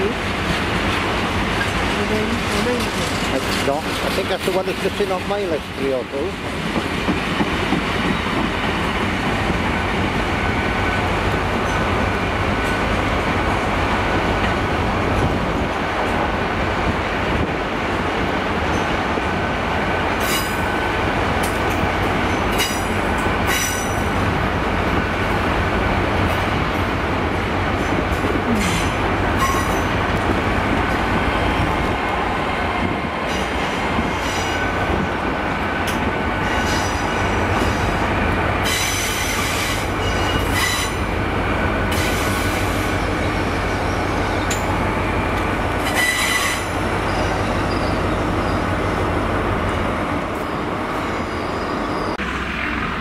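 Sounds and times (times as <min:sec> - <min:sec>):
train running: 0:00.0 - 0:53.0
wheel squeal: 0:45.9 - 0:48.7.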